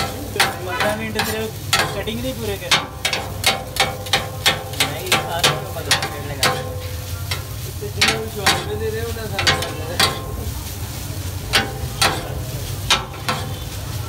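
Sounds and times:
cooking utensils knocking: 0.0s - 10.5s, 11.5s - 13.7s
steady sizzling: 0.0s - 14.0s.

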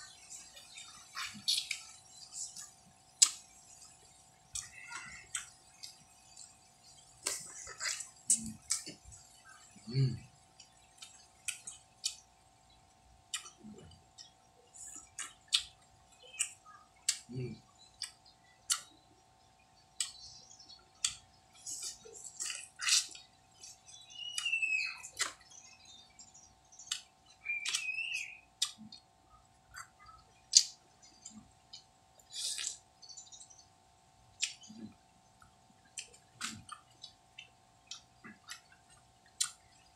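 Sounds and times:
wet smacking chews: 0.4s - 3.9s, 18.0s - 18.9s, 21.0s - 25.5s, 28.6s - 29.1s, 34.4s - 39.8s
crunching bites of fruit: 21.0s - 23.7s, 30.5s - 32.9s, 35.9s - 37.2s.

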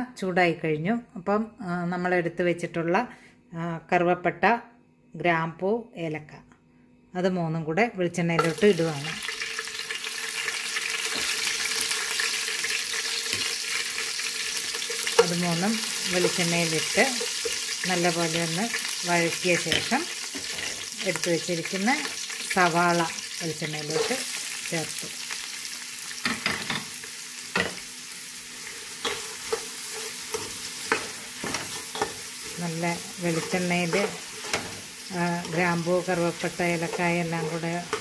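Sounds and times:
spices sizzling in hot oil: 8.4s - 38.0s
spatula scraping and knocking pan: 28.6s - 38.0s.

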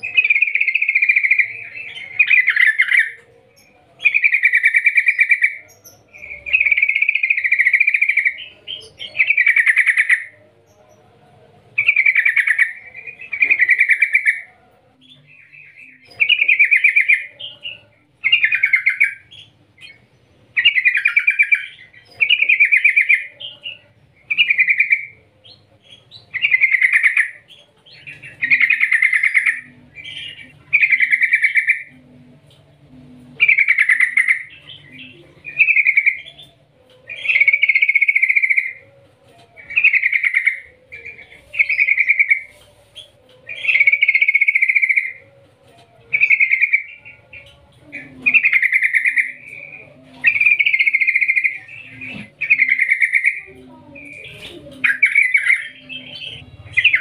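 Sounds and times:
bulbul singing: 0.0s - 57.0s.

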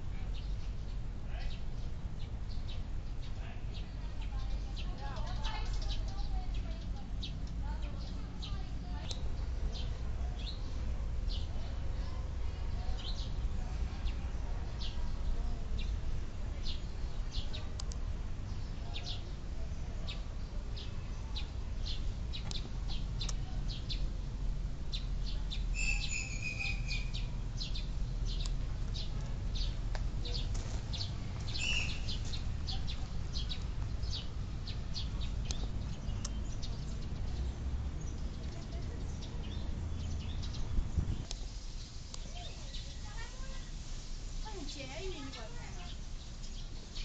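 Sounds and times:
small birds chirping: 0.0s - 47.0s
longer bird calls: 24.9s - 41.2s.

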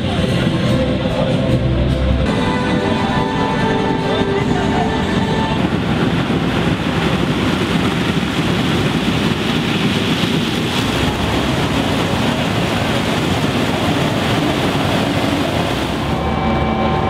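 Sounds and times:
combine harvester machinery noise: 0.0s - 17.0s
tractors running: 0.0s - 17.0s.

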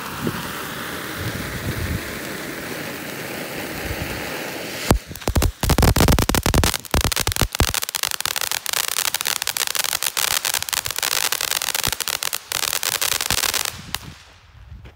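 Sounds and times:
firework fountain hissing: 0.0s - 14.4s
dense crackling: 4.9s - 14.0s.

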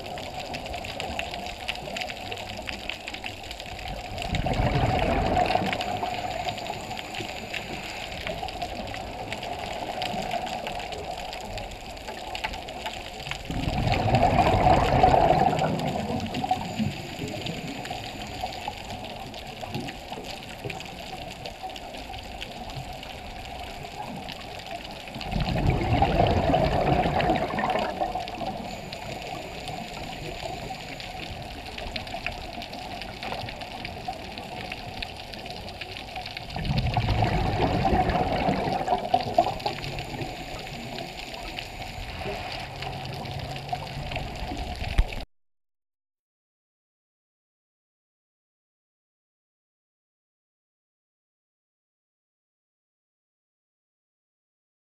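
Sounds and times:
underwater breath bubbling: 4.1s - 11.4s, 13.5s - 19.0s, 25.2s - 31.7s, 36.5s - 44.5s
watery hiss: 4.5s - 11.5s, 37.1s - 44.4s.

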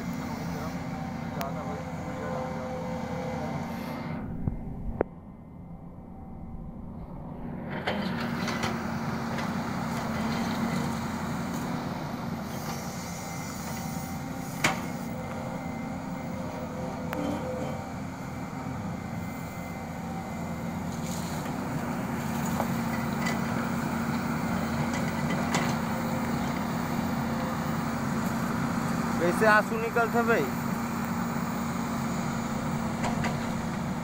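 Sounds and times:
excavator diesel engine running: 0.0s - 34.0s.

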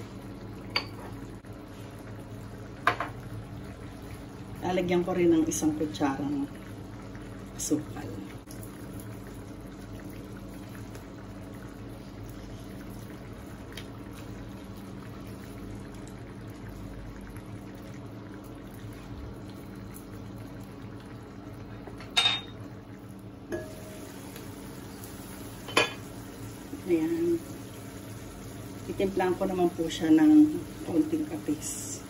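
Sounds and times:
food bubbling in a frying pan: 0.0s - 32.0s
glass lid clinking on pan: 22.0s - 22.6s.

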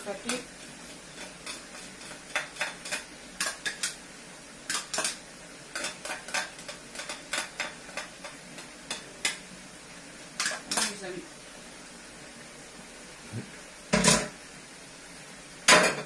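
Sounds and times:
utensil scraping frying pan: 0.0s - 9.5s, 10.2s - 11.1s
faint sizzle: 0.0s - 16.0s.

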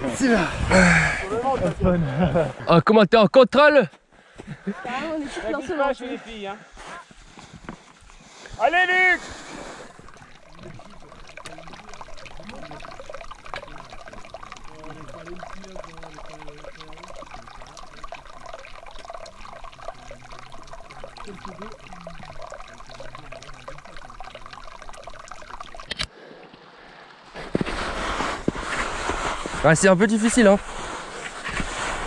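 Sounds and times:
water trickling and pouring: 7.7s - 26.6s, 27.4s - 32.0s.

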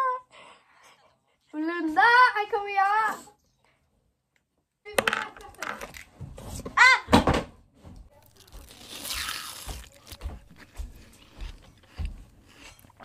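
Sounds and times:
footsteps approaching: 9.5s - 13.0s.

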